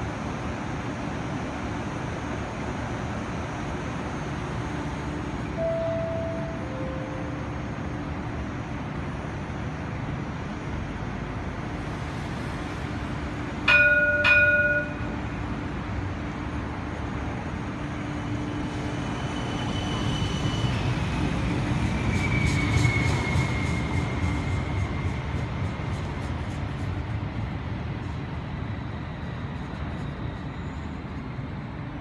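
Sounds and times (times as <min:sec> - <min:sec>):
streetcar running rumble: 0:00.0 - 0:32.0
streetcar warning bell: 0:05.4 - 0:08.5, 0:13.5 - 0:16.3.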